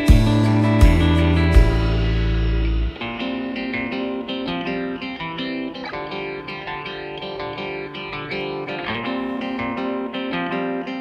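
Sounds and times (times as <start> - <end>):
plucked guitar melody: 0.0 - 11.0.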